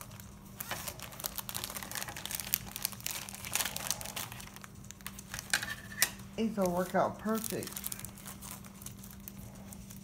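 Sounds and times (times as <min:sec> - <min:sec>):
faint steady hum: 0:00.0 - 0:10.0
plastic bag crinkling: 0:00.0 - 0:10.0.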